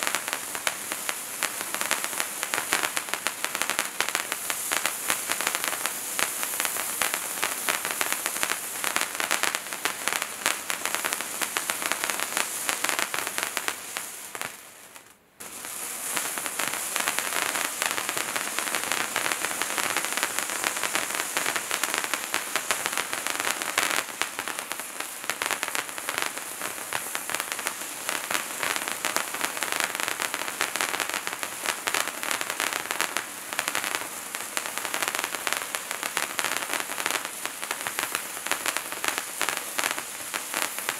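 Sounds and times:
firework fountains hissing sparks: 0.0 - 40.9.

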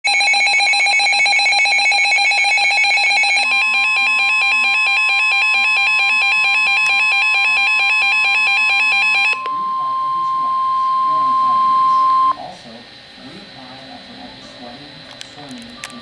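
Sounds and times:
steady alarm tone: 0.0 - 12.4
high-pitched pulsing alarm beeps: 0.1 - 12.4.

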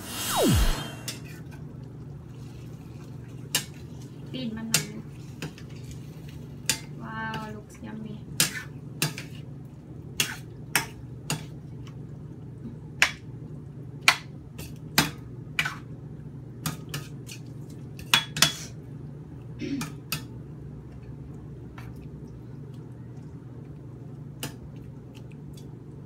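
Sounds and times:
steady low hum: 0.0 - 1.4.

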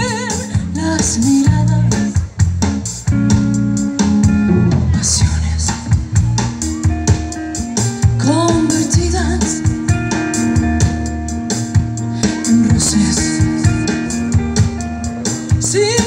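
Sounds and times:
woman singing: 0.0 - 2.2, 8.0 - 10.0, 12.2 - 14.1, 15.5 - 16.0
drum kit beat: 0.0 - 16.0
electric guitar and bass chords: 0.0 - 16.0.

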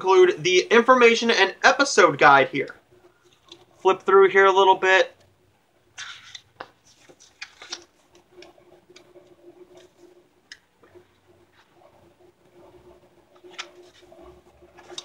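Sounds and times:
paper pages flipping: 6.0 - 15.0.

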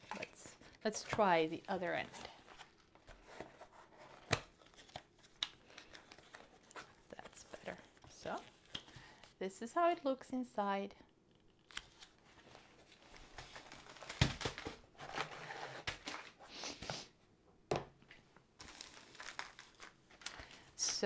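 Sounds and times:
plastic packaging crinkling: 13.0 - 15.2, 18.6 - 20.8.

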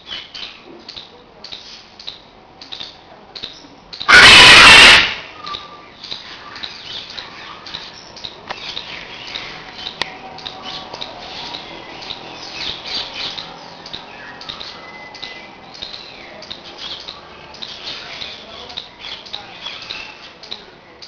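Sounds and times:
soft bird chirps and clicks: 0.0 - 4.1, 5.4 - 21.0
macaw squawking loudly: 4.1 - 5.7.

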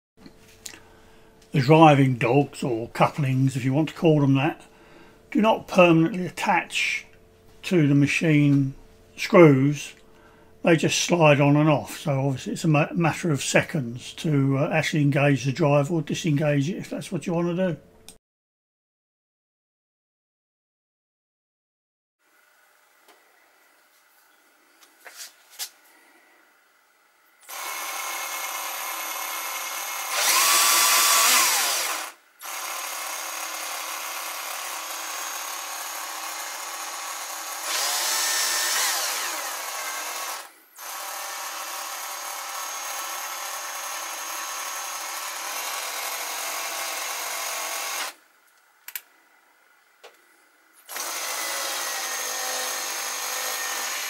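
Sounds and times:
cordless drill running: 27.4 - 48.2, 50.9 - 54.0.

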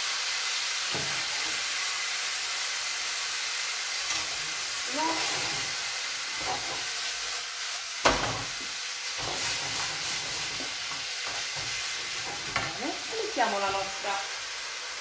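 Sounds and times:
grains sizzling in a frying pan: 0.0 - 15.0
wooden spoon scraping: 4.1 - 7.2, 9.2 - 14.1.

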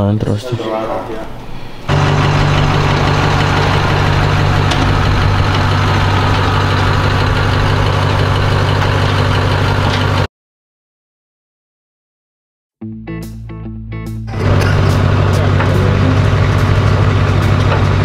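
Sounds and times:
truck engine idling: 0.9 - 10.3, 14.3 - 18.0.

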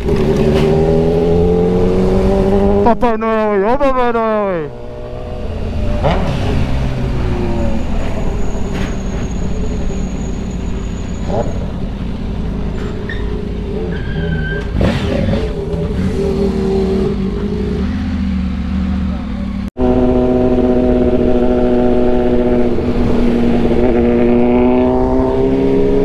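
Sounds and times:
road noise: 0.0 - 26.0
motorcycle engine running: 14.8 - 25.2
wind noise: 19.8 - 26.0.

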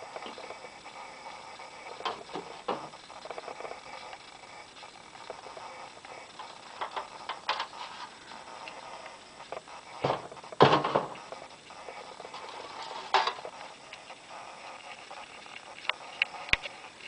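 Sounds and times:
metal signs clattering and scraping: 12.3 - 13.5.

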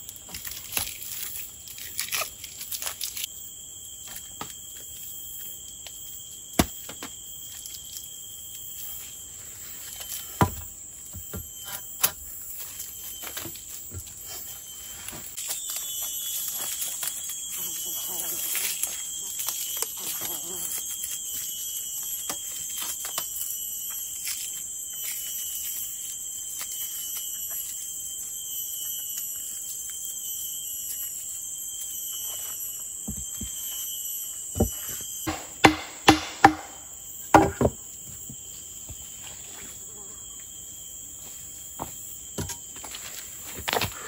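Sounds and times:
insects chirring: 0.0 - 44.0
sharp knocks: 34.6 - 37.8.

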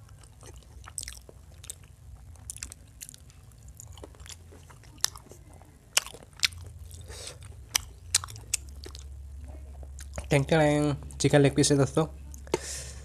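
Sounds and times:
man chewing wetly: 0.0 - 10.4.

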